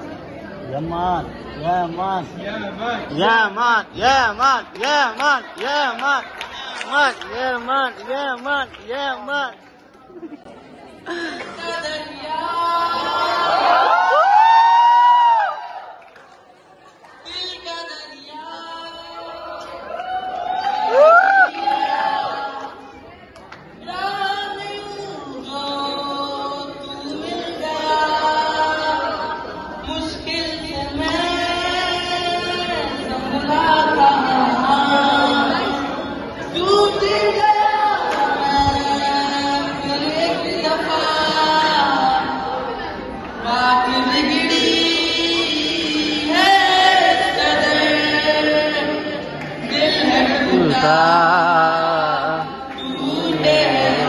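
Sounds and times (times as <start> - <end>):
man singing into a microphone: 43.4 - 54.0.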